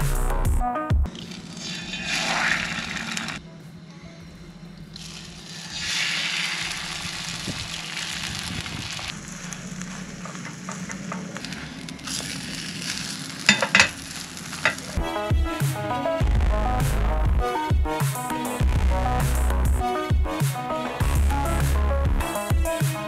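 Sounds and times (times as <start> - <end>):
egg sizzling in a pan: 1.5 - 3.4, 5.0 - 15.0.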